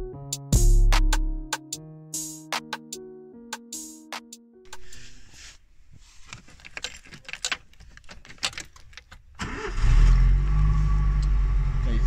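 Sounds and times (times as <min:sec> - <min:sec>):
keys rattling: 0:06.2 - 0:09.4
car engine cranking and idling: 0:08.2 - 0:12.0.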